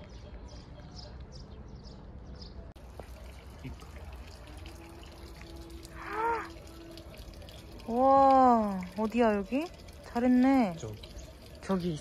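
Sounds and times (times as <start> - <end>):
water trickling and dripping: 2.8 - 12.0.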